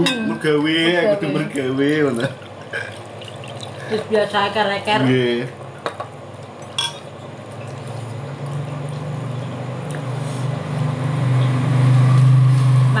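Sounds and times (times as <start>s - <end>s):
vehicle engine hum: 7.5s - 13.0s.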